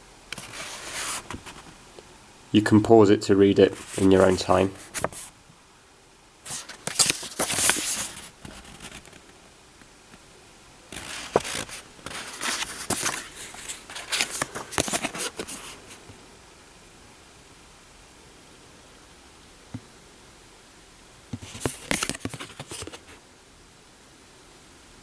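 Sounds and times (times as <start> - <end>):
paper rustling and crinkling: 0.3 - 1.8, 3.6 - 5.3, 6.5 - 9.4, 10.9 - 16.0, 21.4 - 23.2.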